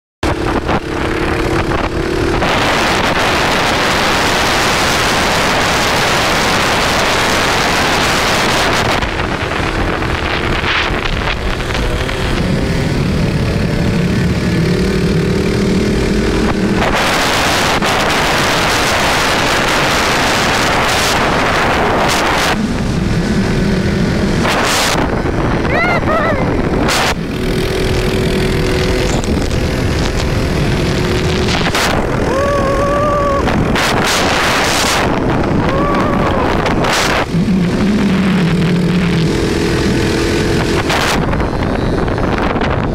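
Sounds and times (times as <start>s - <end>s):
dirt bike engines: 0.2s - 42.9s
wind buffeting microphone: 8.1s - 17.1s, 20.0s - 42.9s.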